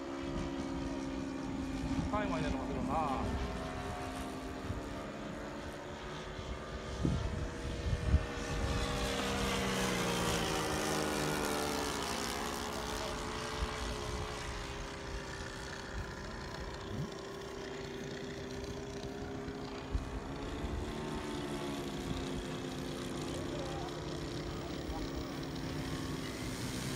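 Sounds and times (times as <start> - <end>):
model airplane propellers droning: 0.0 - 26.9.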